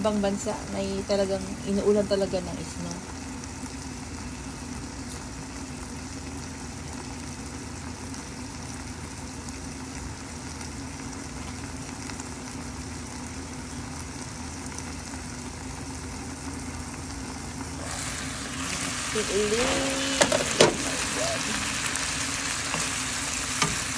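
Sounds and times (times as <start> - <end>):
stew bubbling in a pan: 0.1 - 23.9.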